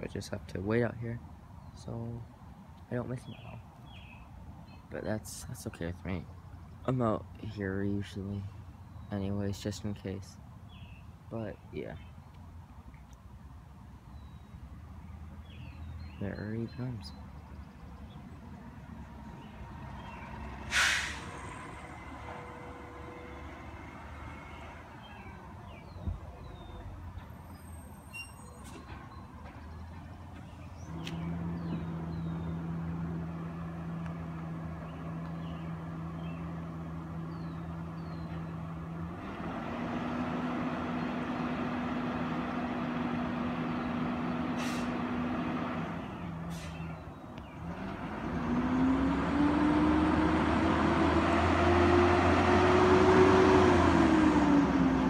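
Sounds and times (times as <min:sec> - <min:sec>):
birds chirping: 0:00.0 - 0:53.7
air brake hisses: 0:20.7 - 0:21.7, 0:44.6 - 0:45.0, 0:46.5 - 0:46.8.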